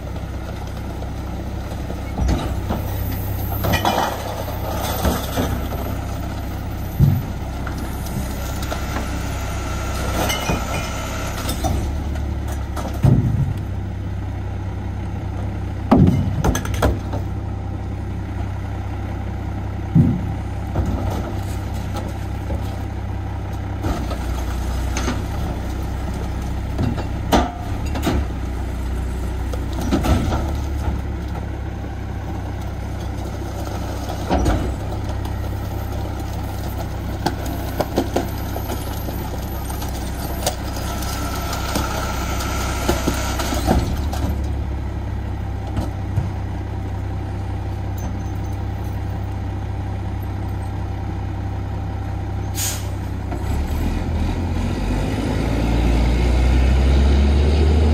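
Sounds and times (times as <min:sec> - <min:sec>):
garbage truck diesel engine idling: 0:00.0 - 0:53.4
knocks and clatter of bins: 0:10.2 - 0:13.7, 0:15.9 - 0:17.3, 0:19.9 - 0:22.7, 0:26.7 - 0:28.3, 0:29.5 - 0:31.5, 0:33.7 - 0:40.9
short sharp air hiss: 0:52.6 - 0:53.0.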